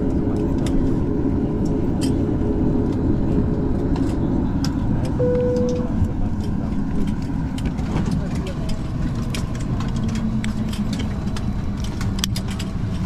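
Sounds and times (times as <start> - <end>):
airplane cabin engine rumble: 0.0 - 13.0
short higher tone: 5.2 - 6.0.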